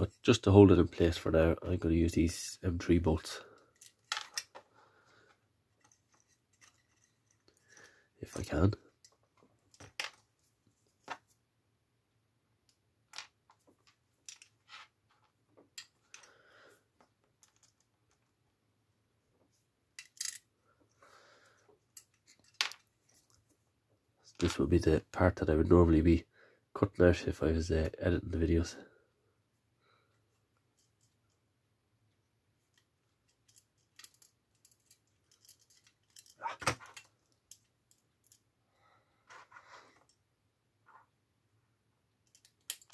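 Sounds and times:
plastic model parts rattling: 3.6s - 4.7s, 5.7s - 10.3s, 13.2s - 16.3s, 17.4s - 18.3s, 20.0s - 20.4s, 21.9s - 23.4s, 32.7s - 38.4s, 42.2s - 42.9s
clicks of small metal bolts: 42.2s - 42.9s.

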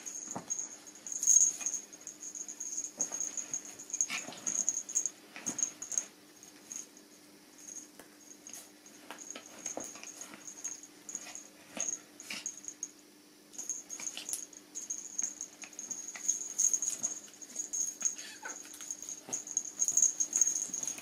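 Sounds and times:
dogs scuffling on sofa: 2.7s - 6.0s.

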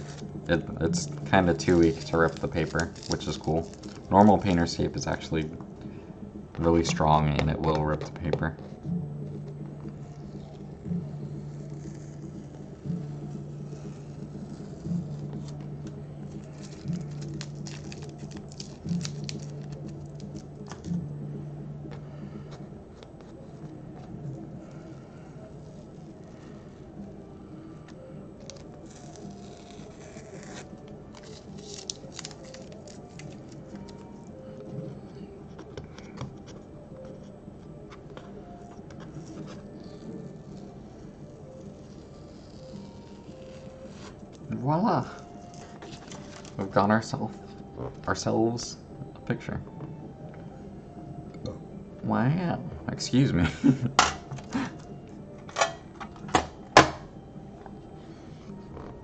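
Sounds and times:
low hum: 0.0s - 44.6s
tape peeling off paper: 1.0s - 4.6s, 16.2s - 20.9s, 28.4s - 34.0s, 38.6s - 44.4s, 45.2s - 46.6s.

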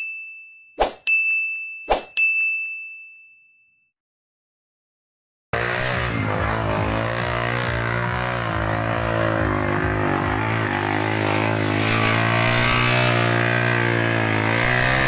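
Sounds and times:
motorcycle engine under load: 5.6s - 15.0s.

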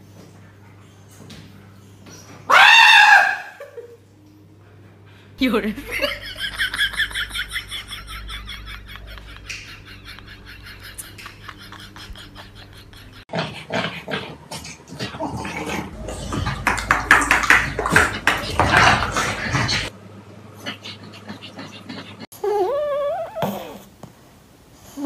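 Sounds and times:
quiet hum: 3.6s - 13.2s
dogs vocalizing while playing: 11.1s - 19.9s, 20.6s - 23.9s.

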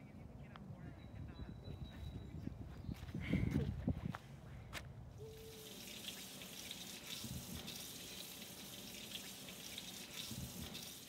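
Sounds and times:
kitchen faucet running into sink: 5.5s - 11.0s.

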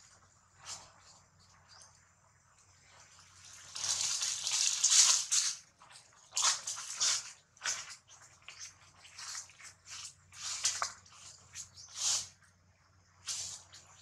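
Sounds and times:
dry leaves crunching underfoot: 3.3s - 5.6s, 6.2s - 12.3s.

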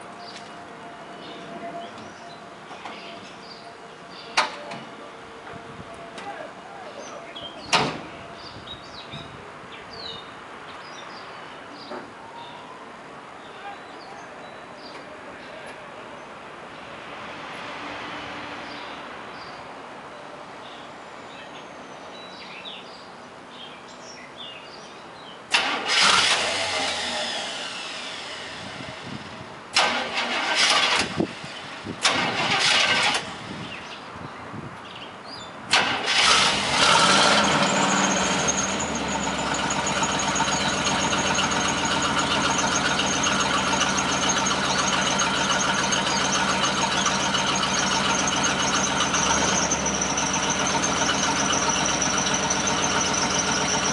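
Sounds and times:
engine cranking and firing: 25.5s - 33.5s, 35.7s - 53.9s
engine idling: 35.7s - 53.9s.

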